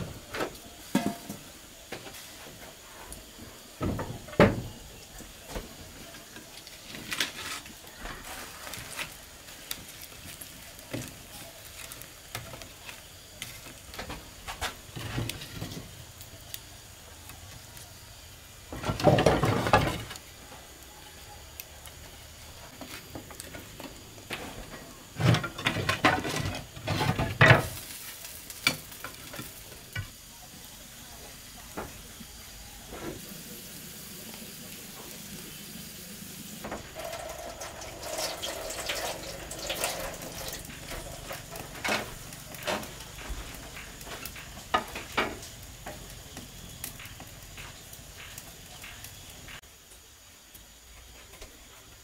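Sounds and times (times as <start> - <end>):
firewood clattering against brick: 0.0 - 16.6, 18.7 - 20.3, 22.7 - 30.3, 36.6 - 49.7
wood fire crackling: 0.0 - 52.0.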